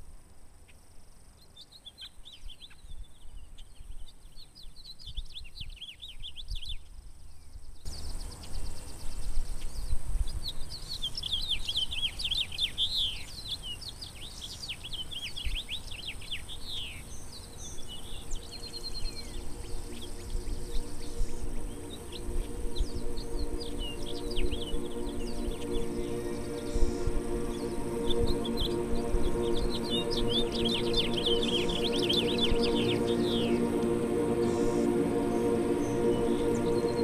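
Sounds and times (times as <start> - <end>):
songbirds chirping and trilling: 1.4 - 37.0
wind rumble on microphone: 8.0 - 10.8.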